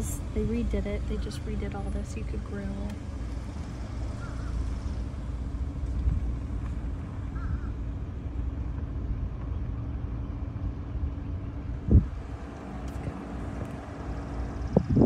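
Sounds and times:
vehicle hum and rumble: 0.0 - 15.0
wind on microphone: 11.8 - 15.0.

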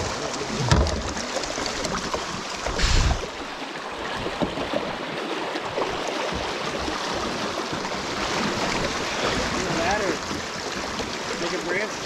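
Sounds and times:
creek water rushing: 0.0 - 12.0.

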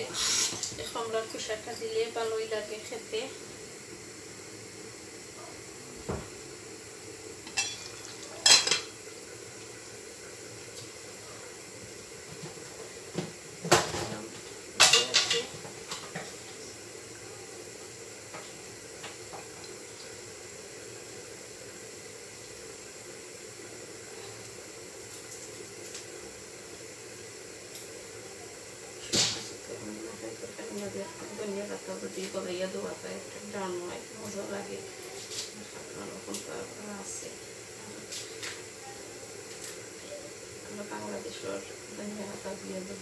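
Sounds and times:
gas hob hissing: 0.0 - 43.0
metal pots and utensils clattering: 7.5 - 8.9, 14.8 - 16.4.

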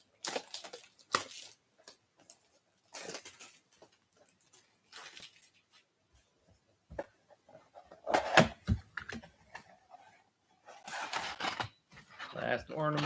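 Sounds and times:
cardboard rustling: 7.0 - 13.0.

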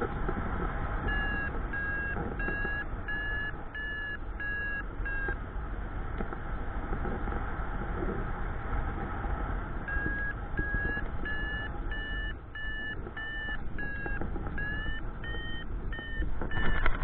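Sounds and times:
variometer short beeps: 1.1 - 5.4, 9.9 - 17.0.

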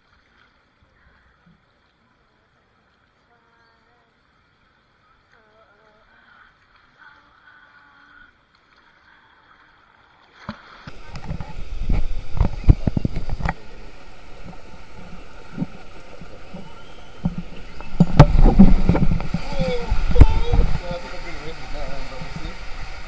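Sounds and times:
rushing water in waterslide: 0.0 - 23.0
wind buffeting microphone: 10.9 - 23.0.

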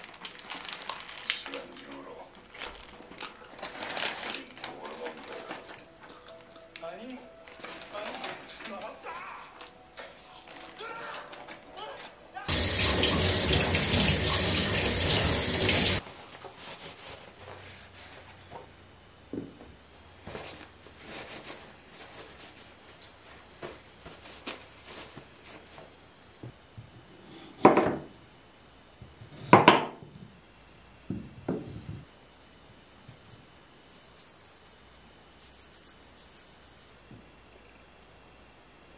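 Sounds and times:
paper towel rustling: 0.0 - 6.0, 7.4 - 9.2, 10.1 - 18.7, 20.2 - 26.0
tap water running into sink: 12.5 - 16.0.

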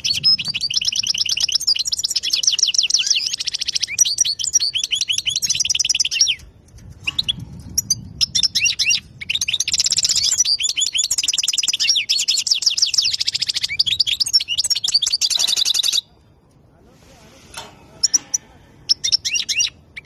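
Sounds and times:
bird twittering song: 0.0 - 16.1, 18.0 - 20.0.

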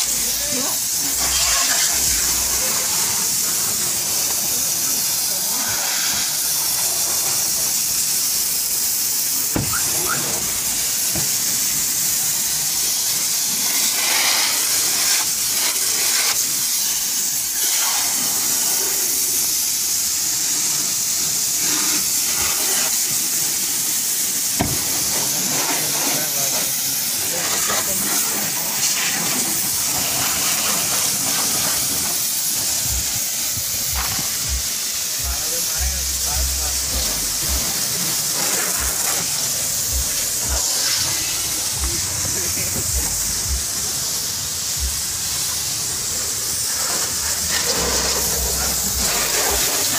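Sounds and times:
water hissing from hose nozzle: 0.0 - 49.9.

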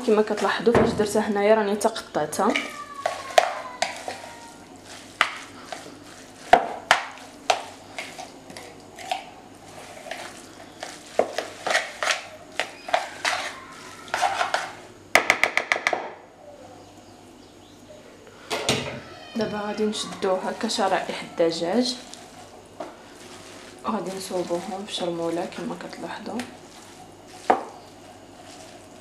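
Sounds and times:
fork scraping plastic bowl: 2.5 - 6.5, 7.5 - 14.8.

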